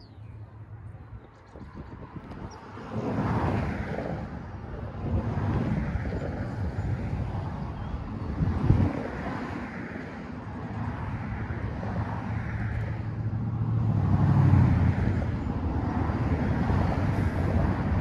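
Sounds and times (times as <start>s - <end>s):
vehicle engine hum: 0.0s - 18.0s
wind rumble: 0.0s - 18.0s.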